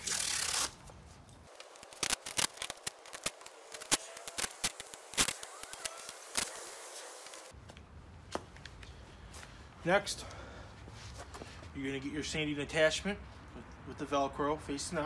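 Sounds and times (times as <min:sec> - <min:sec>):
masking tape ripping: 0:00.0 - 0:00.9, 0:01.5 - 0:07.5
tape crackling and clicking: 0:01.4 - 0:07.6.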